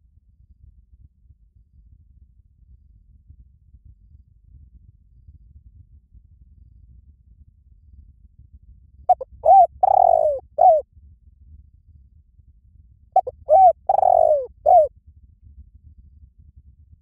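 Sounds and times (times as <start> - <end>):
dove cooing: 9.1 - 10.8, 13.2 - 14.9.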